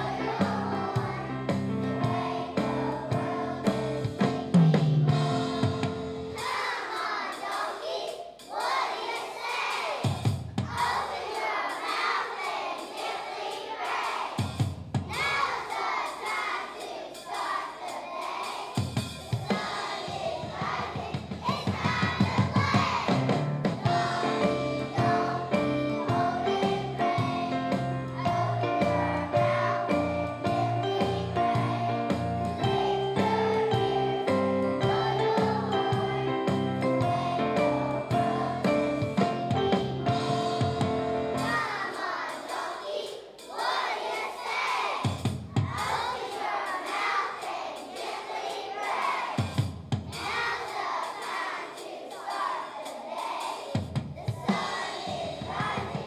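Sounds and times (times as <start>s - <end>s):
music accompaniment with bass line: 0.0s - 6.5s, 20.6s - 41.8s
children singing together: 0.0s - 56.0s.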